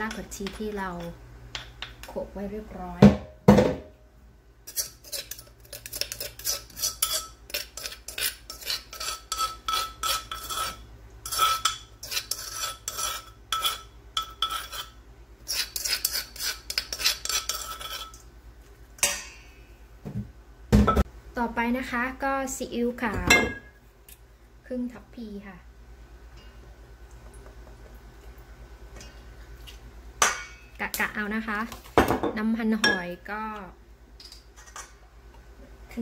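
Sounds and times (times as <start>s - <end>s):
metal spoon tapping and scraping: 0.0s - 2.1s, 4.7s - 18.2s.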